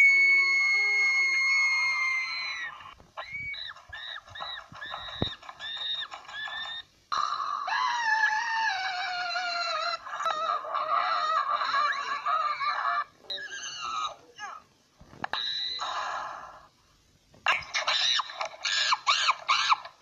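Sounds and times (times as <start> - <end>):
high-pitched cartoon voice screaming: 0.0 - 5.0.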